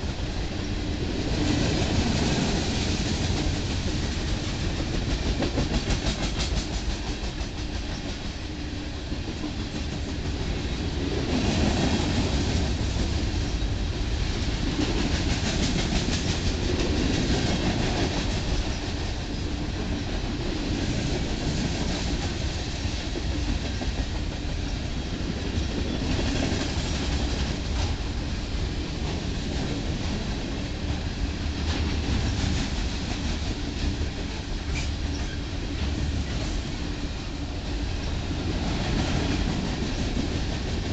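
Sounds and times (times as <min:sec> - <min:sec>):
train wheels rumbling on rail: 0:00.0 - 0:40.9
rapid clickety-clack: 0:01.3 - 0:08.4, 0:09.1 - 0:10.6, 0:14.4 - 0:28.1, 0:31.6 - 0:36.8, 0:38.5 - 0:40.9.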